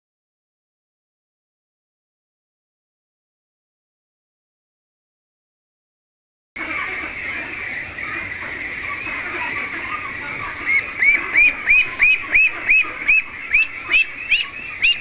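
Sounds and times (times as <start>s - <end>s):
duck peeping loudly close by: 6.6s - 15.0s
ducklings peeping: 6.6s - 15.0s.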